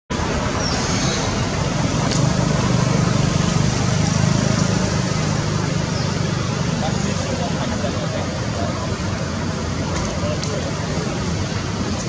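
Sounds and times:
vehicle engine rumbling: 0:00.1 - 0:12.0.

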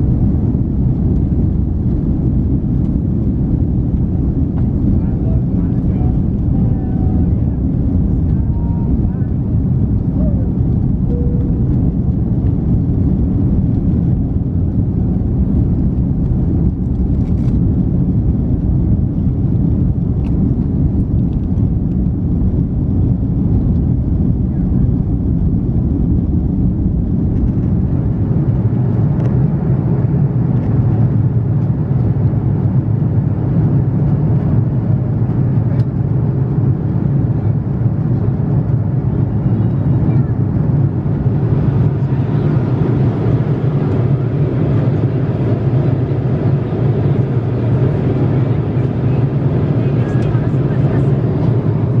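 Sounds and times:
airplane cabin engine rumble: 0:00.0 - 0:52.0.

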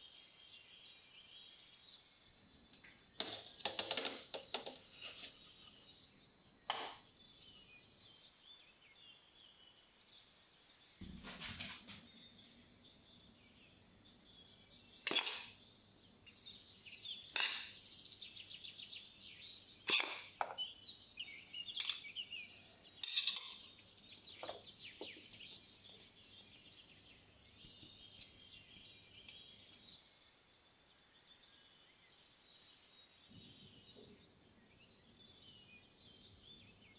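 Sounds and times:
soft scraping and sliding: 0:04.7 - 0:05.9.

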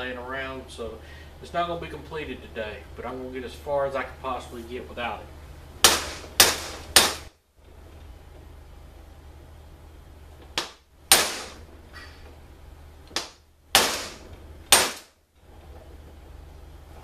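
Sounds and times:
hammer striking metal: 0:05.8 - 0:07.3, 0:10.6 - 0:11.6, 0:13.2 - 0:15.1.

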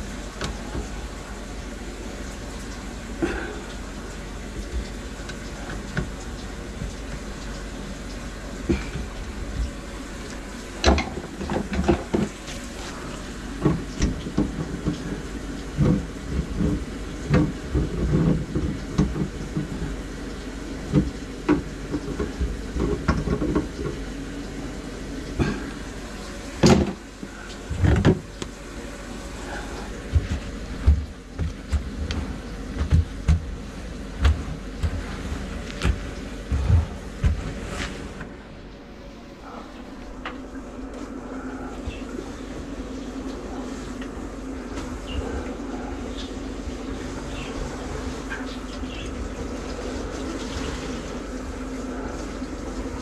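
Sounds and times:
drain-cleaning machine humming: 0:00.0 - 0:53.0
cable knocking and rattling: 0:30.0 - 0:38.2.

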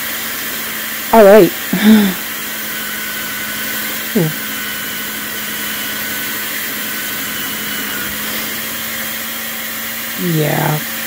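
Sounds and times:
belt sander running: 0:00.0 - 0:11.0.

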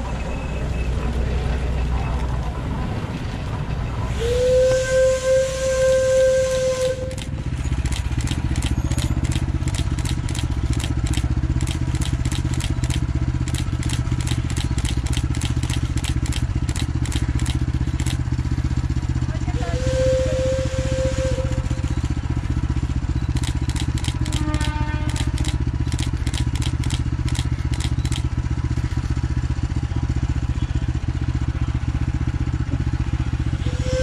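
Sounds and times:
steam locomotive chuffing: 0:03.5 - 0:34.0
steam whistle blast: 0:04.1 - 0:07.3, 0:19.6 - 0:22.0, 0:24.4 - 0:25.2, 0:33.6 - 0:34.0.

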